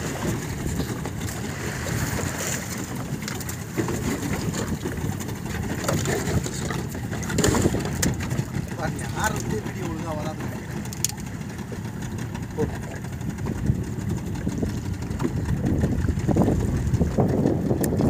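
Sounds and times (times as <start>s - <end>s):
boat engine rumble and water wash: 0.0s - 18.0s
faint clicks and knocks: 10.8s - 12.3s.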